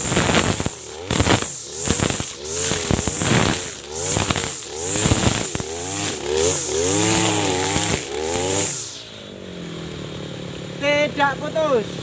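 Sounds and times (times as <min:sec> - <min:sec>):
trimmer line clicking on stems: 0:00.0 - 0:08.8
trimmer line whirring: 0:00.0 - 0:10.5
brush cutter engine revving: 0:00.0 - 0:12.0.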